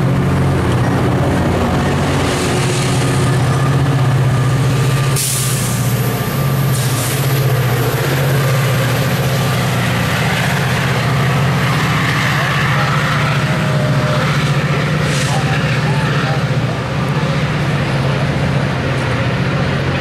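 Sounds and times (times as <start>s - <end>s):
diesel locomotive running: 0.0s - 20.0s
air hissing: 5.1s - 7.5s.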